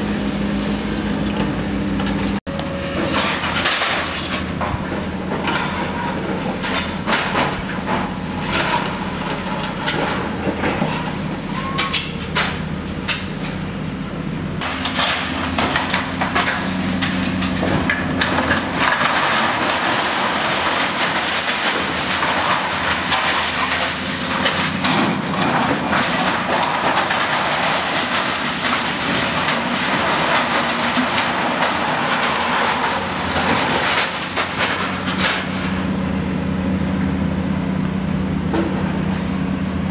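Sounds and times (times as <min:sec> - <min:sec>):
excavator diesel engine running: 0:00.0 - 0:39.9
metal knocks and scrapes: 0:01.0 - 0:13.6
metal and debris clattering: 0:01.4 - 0:13.7, 0:14.6 - 0:36.2.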